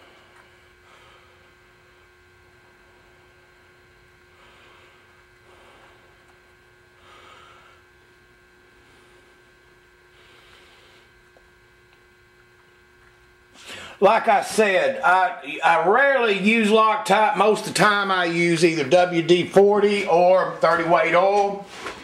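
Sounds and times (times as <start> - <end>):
electrical hum: 0.0 - 22.0
faint breathy sounds: 7.0 - 7.9.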